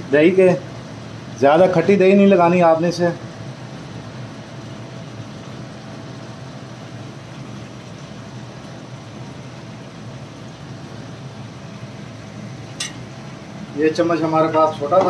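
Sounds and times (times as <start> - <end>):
chicken sizzling in oil: 0.0 - 15.0
gas burner flame hissing: 0.0 - 15.0.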